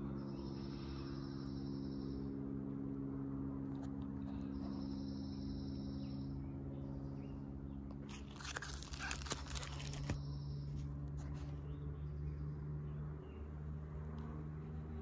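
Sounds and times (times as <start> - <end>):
steady low hum: 0.0 - 15.0
plastic album sleeves crinkling: 8.1 - 10.2.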